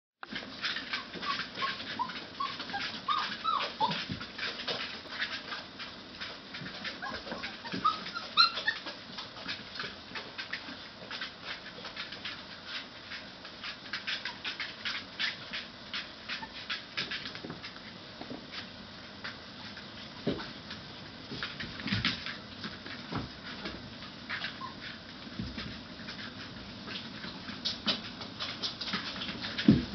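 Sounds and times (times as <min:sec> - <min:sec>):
claws ticking on hard floor: 0:00.2 - 0:29.9
puppy yelp: 0:00.6 - 0:05.5, 0:06.7 - 0:09.0, 0:14.0 - 0:15.5, 0:16.3 - 0:16.8, 0:24.4 - 0:25.0
puppies squeaking and whimpering: 0:00.6 - 0:05.6, 0:06.6 - 0:09.9, 0:13.9 - 0:15.6, 0:16.3 - 0:17.3, 0:24.4 - 0:25.0.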